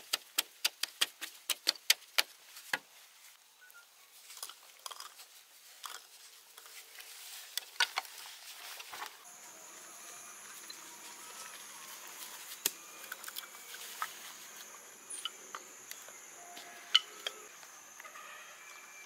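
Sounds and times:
high insect buzz: 0:09.2 - 0:19.0.

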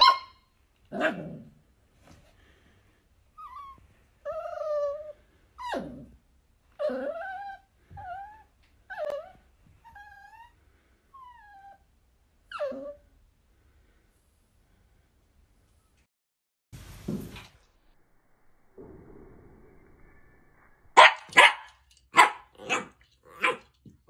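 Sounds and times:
puppy yipping and whining: 0:00.0 - 0:00.4, 0:03.4 - 0:06.1, 0:06.8 - 0:10.5, 0:12.5 - 0:13.0
puppy barking: 0:00.0 - 0:01.2, 0:21.0 - 0:23.8.

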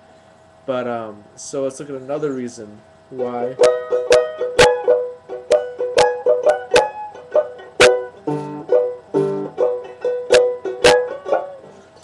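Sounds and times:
banjo picking: 0:03.2 - 0:12.0.

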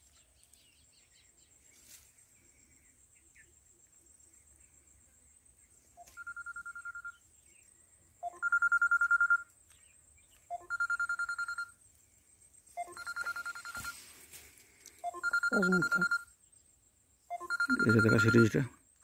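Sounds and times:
electronic ringtone trilling: 0:06.1 - 0:07.2, 0:08.2 - 0:09.5, 0:10.5 - 0:11.8, 0:12.8 - 0:14.0, 0:15.0 - 0:16.3, 0:17.3 - 0:18.7.

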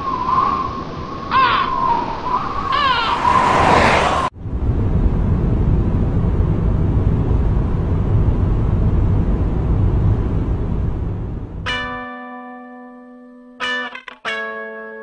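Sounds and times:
truck engine rumble: 0:02.9 - 0:11.8
plucked guitar chord: 0:11.7 - 0:15.0.

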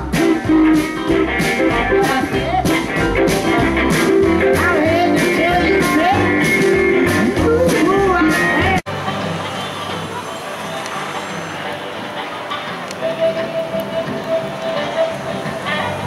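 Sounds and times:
drum kit steady beat: 0:00.0 - 0:08.8
upright double bass: 0:00.0 - 0:10.0
electric guitars with bent notes: 0:00.0 - 0:16.0.

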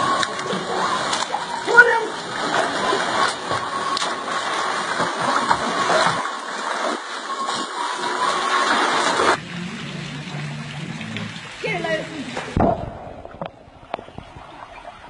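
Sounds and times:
water splashing and sloshing: 0:00.0 - 0:15.0
sharp water slaps: 0:00.1 - 0:09.4, 0:12.3 - 0:14.1.

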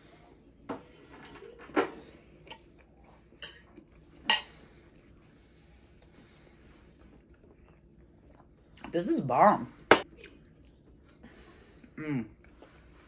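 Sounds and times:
cutlery clinking against plates: 0:00.7 - 0:04.6.

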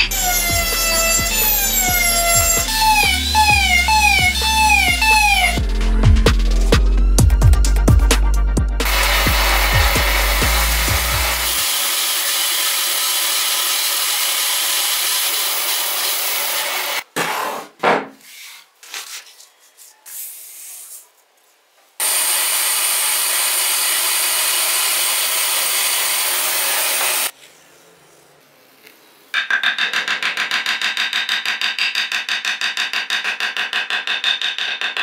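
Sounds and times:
band saw cutting wood: 0:00.0 - 0:05.6, 0:08.8 - 0:17.0, 0:22.0 - 0:27.3
paper rustling: 0:18.2 - 0:21.2.

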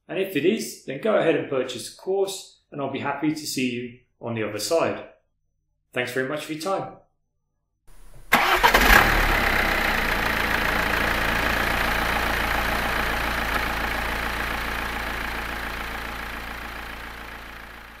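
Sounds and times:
engine running: 0:08.2 - 0:18.0.

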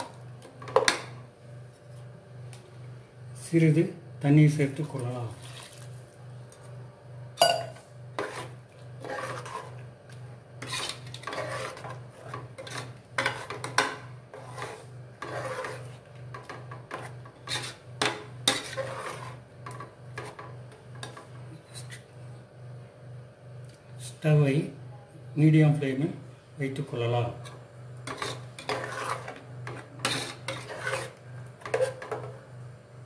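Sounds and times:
ladle scraping metal pot: 0:07.5 - 0:09.8, 0:10.6 - 0:21.2, 0:28.0 - 0:32.4.

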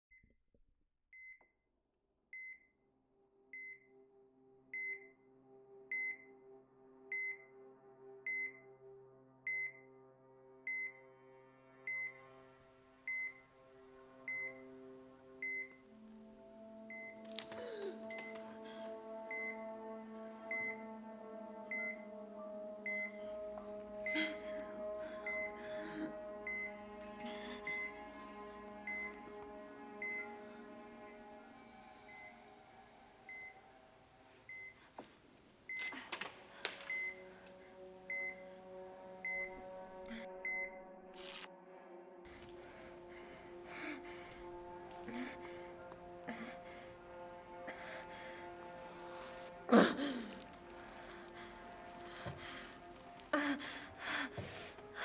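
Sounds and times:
heart monitor beeping: 0:02.4 - 0:02.7, 0:04.8 - 0:05.1, 0:05.9 - 0:06.3, 0:07.1 - 0:07.4, 0:08.3 - 0:08.6, 0:09.5 - 0:09.8, 0:10.7 - 0:11.0, 0:11.9 - 0:12.2, 0:13.1 - 0:13.4, 0:14.3 - 0:14.7, 0:15.4 - 0:15.8, 0:16.6 - 0:17.4, 0:18.1 - 0:18.6, 0:19.2 - 0:21.0, 0:21.7 - 0:25.6, 0:26.4 - 0:26.8, 0:27.6 - 0:28.1, 0:28.8 - 0:29.2, 0:30.0 - 0:30.3, 0:32.1 - 0:32.4, 0:33.2 - 0:33.7, 0:34.5 - 0:34.8, 0:35.7 - 0:40.8
low music drone: 0:04.3 - 0:34.7, 0:36.1 - 0:55.0.

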